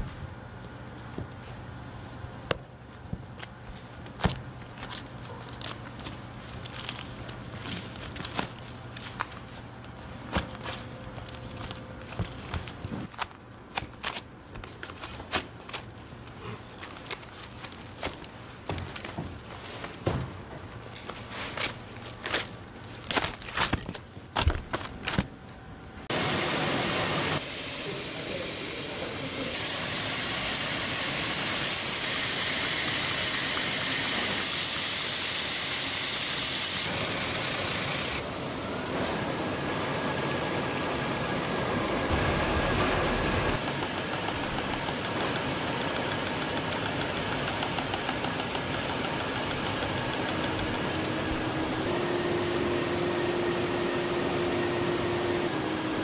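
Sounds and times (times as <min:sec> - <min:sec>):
machinery hiss and whir: 0:26.0 - 0:56.0.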